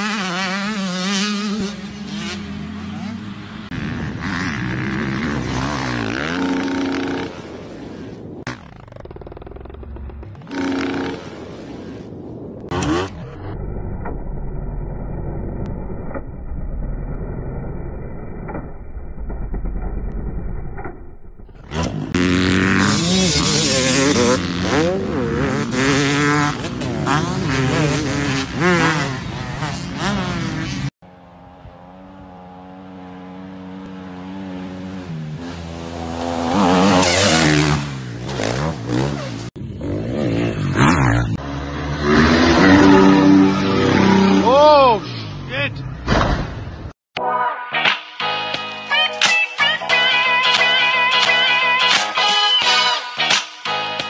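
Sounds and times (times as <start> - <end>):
dirt bike engines revving: 0.0 - 13.5, 21.6 - 46.0.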